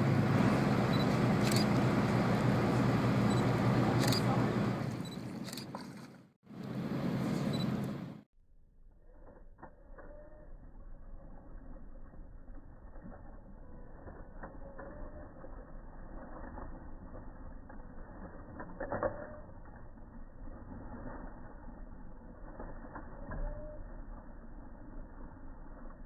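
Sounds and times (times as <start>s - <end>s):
crocodile splashing water: 0.0s - 6.3s.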